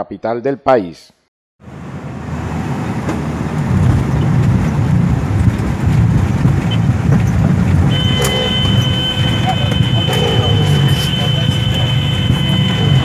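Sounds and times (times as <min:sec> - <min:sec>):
low rumble inside plane cabin: 0:03.0 - 0:13.0
steady high tone: 0:07.9 - 0:13.0.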